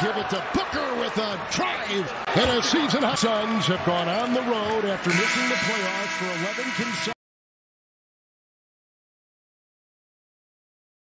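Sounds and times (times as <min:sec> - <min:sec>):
sports commentary: 0:00.0 - 0:07.2.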